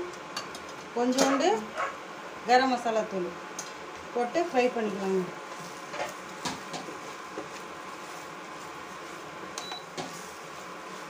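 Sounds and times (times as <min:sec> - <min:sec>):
frying sizzle: 0:03.4 - 0:11.0.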